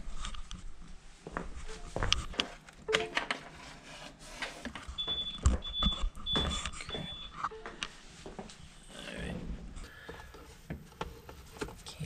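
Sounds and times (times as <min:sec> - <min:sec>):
high alarm beeps: 0:05.0 - 0:07.8.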